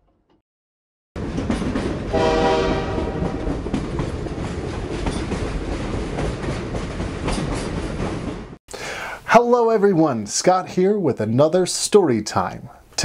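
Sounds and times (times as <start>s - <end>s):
train rumbling on rails: 1.2s - 8.6s
train horn: 2.1s - 3.4s.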